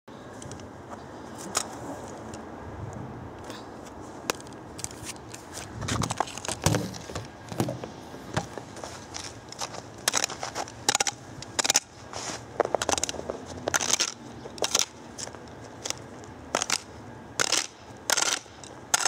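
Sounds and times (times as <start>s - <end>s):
wet snow and ice crunching: 8.2s - 16.8s.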